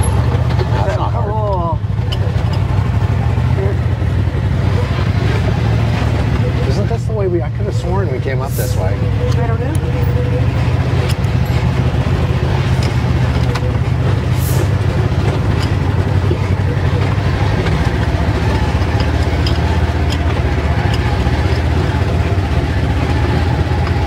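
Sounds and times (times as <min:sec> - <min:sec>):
engine running steadily: 0:00.0 - 0:24.0
clicks and knocks: 0:15.0 - 0:22.3.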